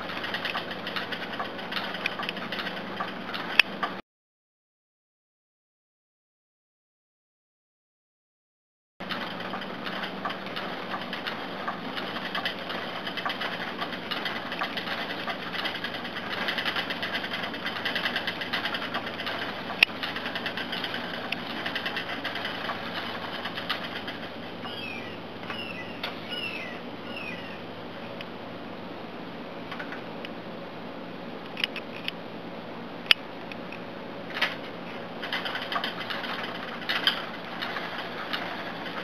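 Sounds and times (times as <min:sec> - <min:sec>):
spinning wheel clatter and whir: 0:00.0 - 0:04.0, 0:09.0 - 0:28.2, 0:34.2 - 0:39.0.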